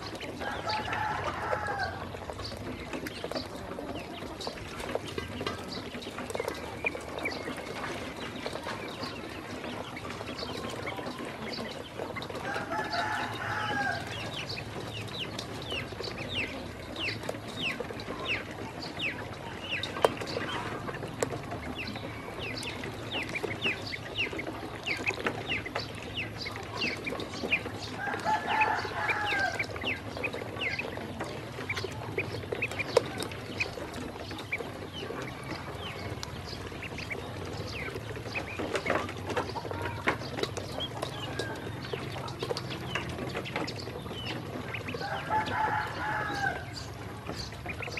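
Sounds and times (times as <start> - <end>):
ducklings peeping: 0.0 - 47.9.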